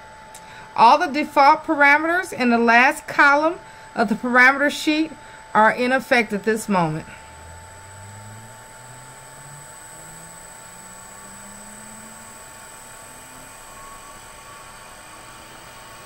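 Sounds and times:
electric motor hum rising: 6.1 - 16.0.

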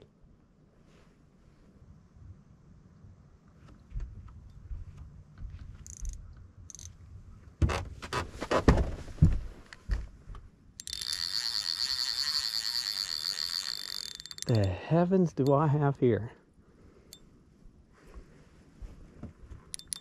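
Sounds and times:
knocks and thumps from gear: 7.6 - 10.4
fishing reel drag buzzing: 10.8 - 14.7.

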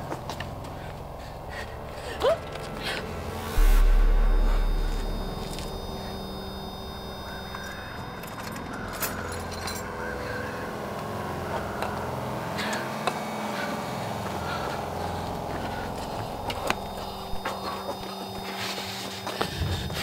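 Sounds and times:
low steady hum: 0.0 - 18.5.

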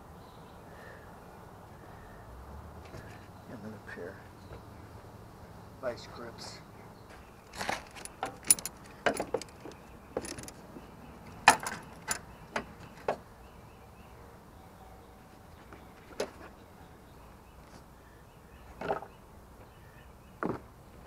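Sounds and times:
metal tools clinking on car parts: 7.5 - 10.6, 11.5 - 12.3.

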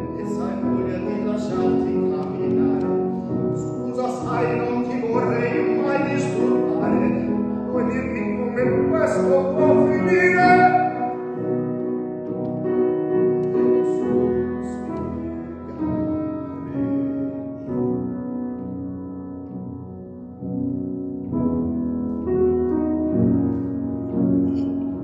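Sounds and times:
man singing: 0.0 - 11.4
grand piano: 0.0 - 25.0.

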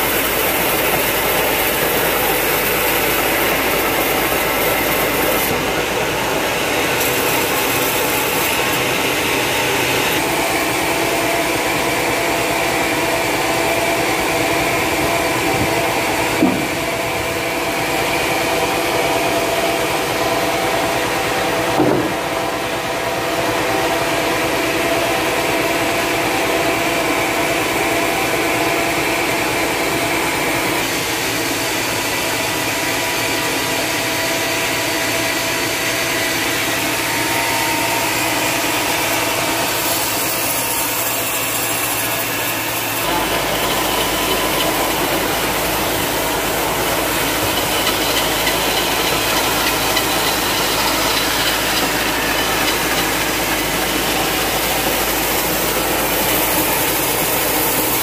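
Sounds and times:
saw blade cutting timber: 0.0 - 58.0
sawmill engine hum: 0.0 - 58.0.

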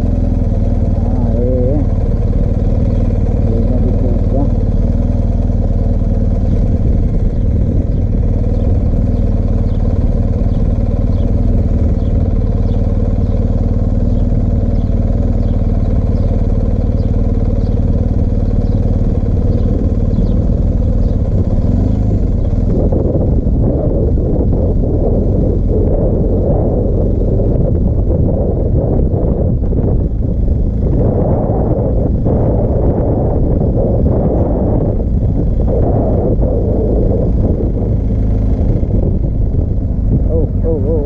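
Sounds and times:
motorcycle engine running: 0.0 - 41.0.

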